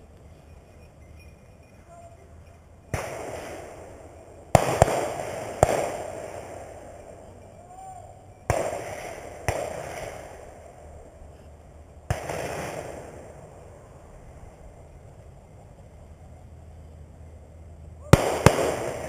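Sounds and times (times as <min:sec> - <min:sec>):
shotgun shots echoing: 0:02.9 - 0:07.5, 0:08.5 - 0:11.0, 0:12.1 - 0:13.7, 0:18.1 - 0:19.0.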